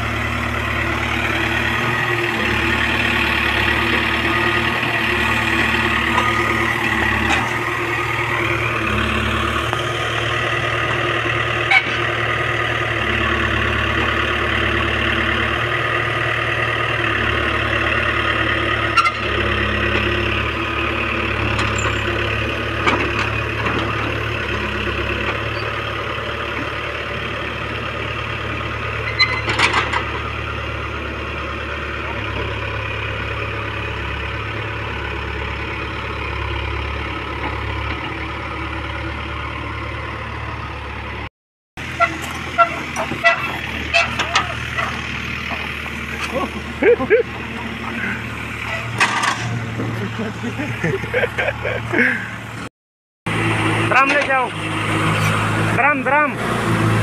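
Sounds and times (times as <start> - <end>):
diesel engine running: 0.0 - 52.7, 53.3 - 57.0.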